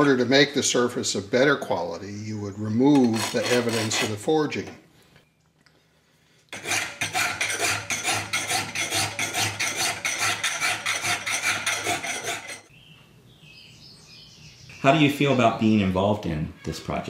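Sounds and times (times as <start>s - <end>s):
hand file rasping on iron: 2.9s - 4.3s, 6.5s - 12.7s.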